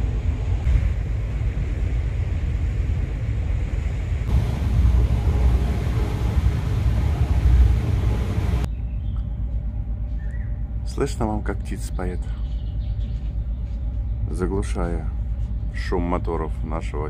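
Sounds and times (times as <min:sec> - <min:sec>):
ship engines rumbling: 0:03.8 - 0:08.7.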